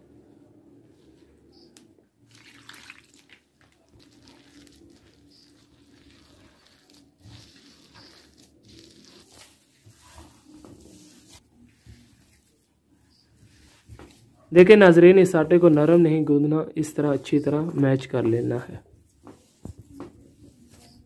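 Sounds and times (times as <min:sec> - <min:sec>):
wet flour squishing: 0:02.2 - 0:21.0
hand scraping clay dish: 0:03.6 - 0:14.2.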